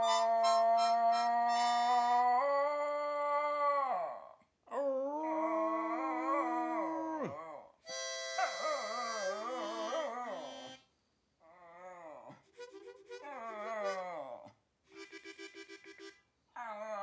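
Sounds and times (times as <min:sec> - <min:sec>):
dog howling: 0:00.0 - 0:04.2, 0:05.2 - 0:07.4, 0:08.4 - 0:10.8.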